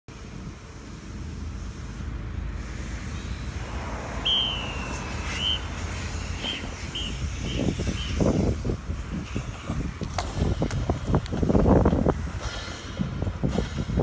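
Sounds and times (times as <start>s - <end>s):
wind rumble: 0.1s - 14.0s
whistle blasts: 4.1s - 8.4s.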